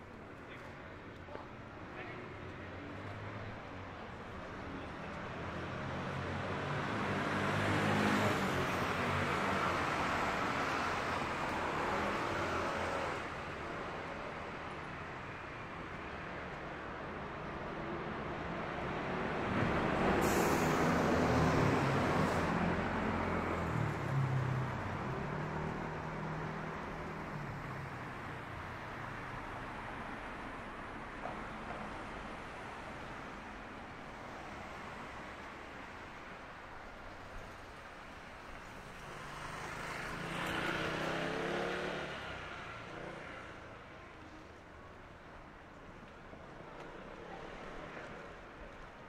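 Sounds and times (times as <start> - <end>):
vehicle engine hum passing: 38.8 - 43.6.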